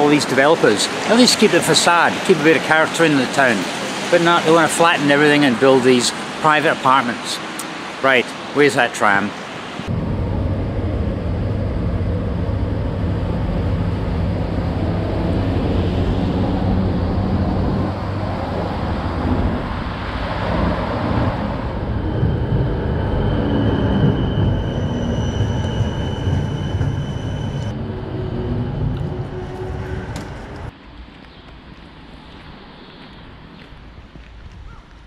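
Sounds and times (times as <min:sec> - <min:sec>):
tram rumbling on rails: 0:00.0 - 0:06.8, 0:09.4 - 0:31.2
high thin whine: 0:09.7 - 0:30.7.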